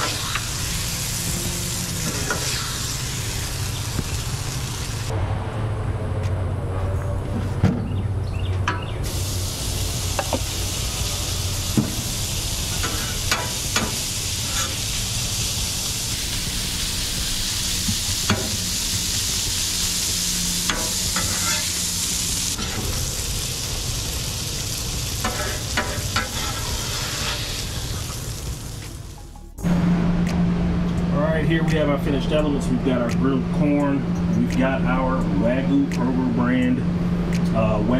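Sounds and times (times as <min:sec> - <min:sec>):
spatula scraping griddle: 0:00.0 - 0:03.0, 0:12.8 - 0:14.9, 0:19.9 - 0:23.0, 0:25.2 - 0:28.2
corn sizzling in oil: 0:00.0 - 0:05.1, 0:09.1 - 0:29.2
low steady hum: 0:27.8 - 0:37.9.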